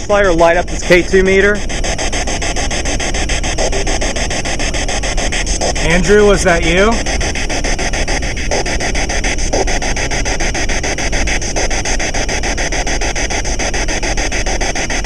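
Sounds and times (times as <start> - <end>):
dense pulsing rasping noise: 0.0 - 15.0.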